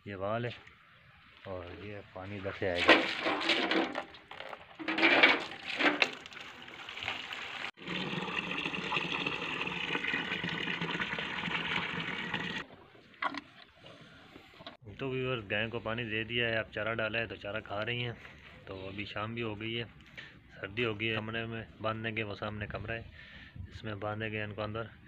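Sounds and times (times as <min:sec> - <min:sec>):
water pouring from hose into bucket: 0:05.3 - 0:12.6.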